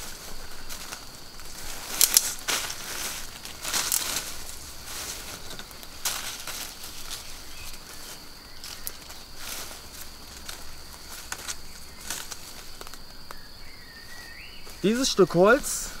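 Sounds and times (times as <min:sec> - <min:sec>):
branches rustling and crackling: 0:00.0 - 0:16.0
sharp branch cracks: 0:01.9 - 0:02.8, 0:03.6 - 0:04.3.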